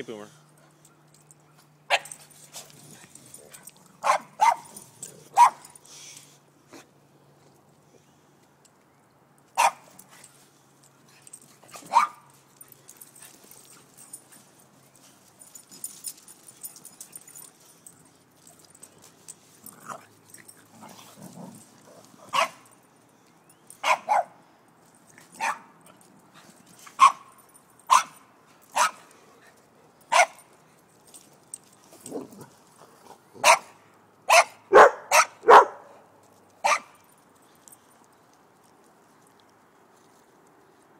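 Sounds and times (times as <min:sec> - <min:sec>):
dog barking: 0:04.0 - 0:04.6, 0:05.4 - 0:05.6, 0:11.9 - 0:12.2, 0:22.3 - 0:22.6, 0:23.8 - 0:24.3, 0:25.4 - 0:25.7, 0:33.4 - 0:33.7, 0:34.3 - 0:36.0, 0:36.6 - 0:36.9.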